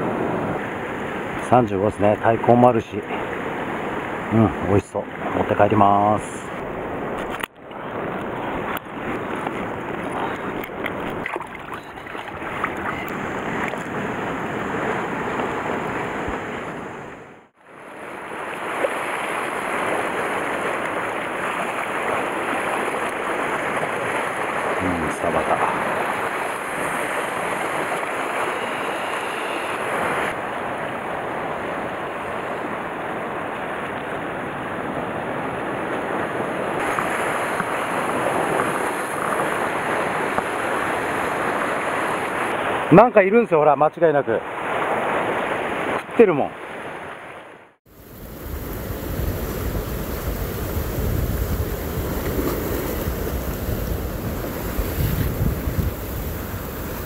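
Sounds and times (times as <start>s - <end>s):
surf breaking on rocks: 18.0s - 34.4s, 35.3s - 43.5s, 47.8s - 57.0s
wind buffeting microphone: 48.0s - 57.0s.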